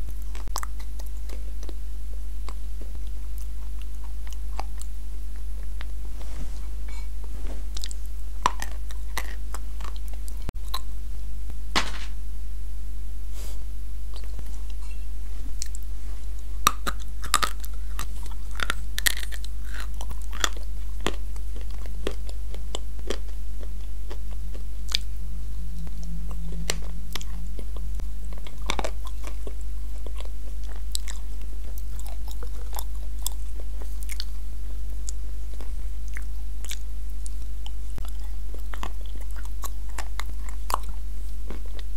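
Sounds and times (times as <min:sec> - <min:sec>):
chewing and crunching clay: 0:00.0 - 0:06.0, 0:07.7 - 0:10.9, 0:15.6 - 0:25.1, 0:26.1 - 0:41.9
steady low hum: 0:00.0 - 0:41.9.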